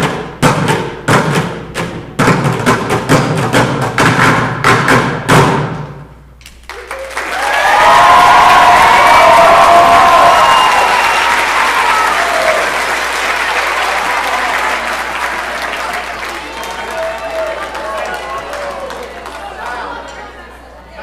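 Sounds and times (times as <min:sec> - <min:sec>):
percussion ensemble drum strikes: 0:00.0 - 0:06.4
audience applause: 0:06.6 - 0:20.4
audience cheering: 0:06.7 - 0:20.1.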